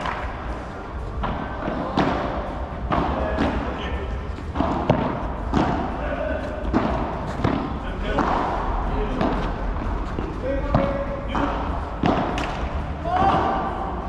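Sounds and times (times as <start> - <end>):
rackets hitting ball: 0.0 - 14.0
ball bouncing on court: 4.5 - 6.0, 6.6 - 13.6.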